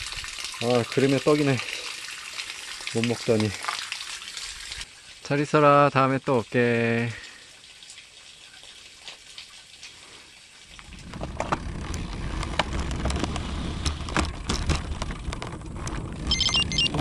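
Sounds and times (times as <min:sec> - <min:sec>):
road rumble: 0:10.7 - 0:17.0
wind buffeting microphone: 0:10.8 - 0:17.0
bike clicks and rattles: 0:11.0 - 0:17.0.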